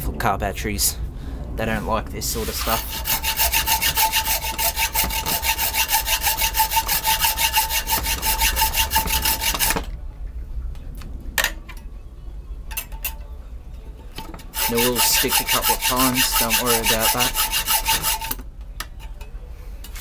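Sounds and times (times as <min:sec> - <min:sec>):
hacksaw cutting metal: 0:02.4 - 0:09.9, 0:14.2 - 0:18.4.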